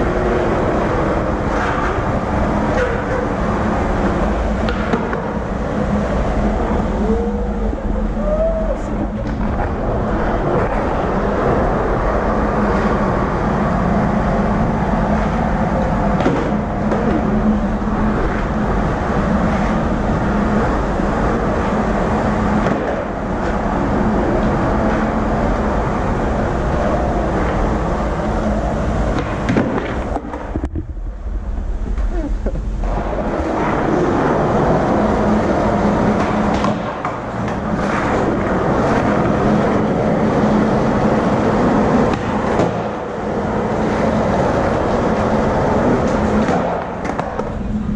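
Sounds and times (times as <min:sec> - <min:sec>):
skateboard clacks: 0:00.0 - 0:07.0, 0:08.9 - 0:31.1, 0:31.7 - 0:47.9
skateboard wheels rolling on floor: 0:00.0 - 0:47.9.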